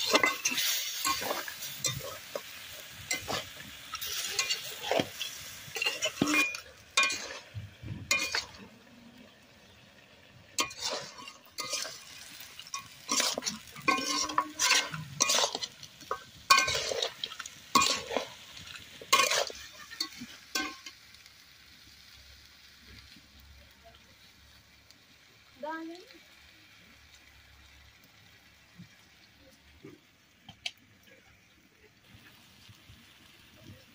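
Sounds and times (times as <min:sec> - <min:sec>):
metal spatula scraping wok: 0:00.0 - 0:08.9, 0:10.5 - 0:21.0
frying sizzle: 0:00.0 - 0:33.9.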